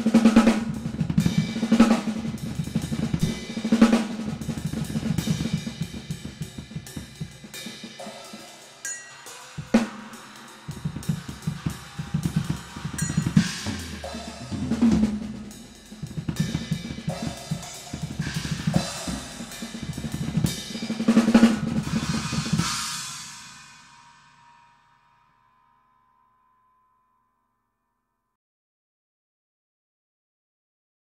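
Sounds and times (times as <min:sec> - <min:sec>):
drum solo: 0:00.0 - 0:24.4
cymbal crash: 0:03.2 - 0:26.7.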